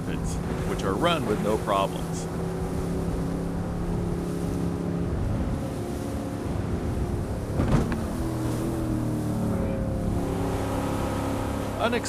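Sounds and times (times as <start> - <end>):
motorboat engine running: 0.0 - 12.0
rushing water: 0.0 - 12.0
loud thump: 7.5 - 8.1.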